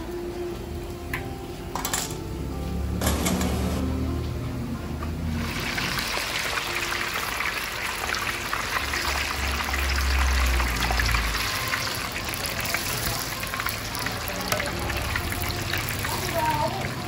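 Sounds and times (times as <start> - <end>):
food deep-frying in oil: 5.1 - 17.0.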